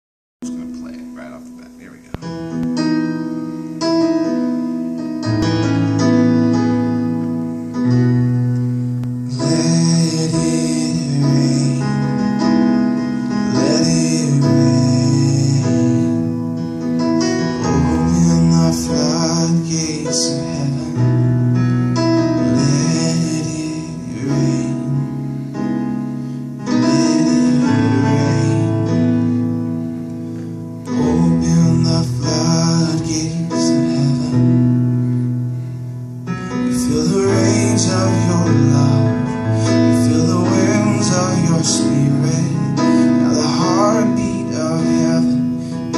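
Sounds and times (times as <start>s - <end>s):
electronic keyboard chords: 0.4s - 45.9s
man singing: 9.2s - 25.6s, 26.6s - 29.4s, 30.8s - 34.9s, 36.4s - 45.9s.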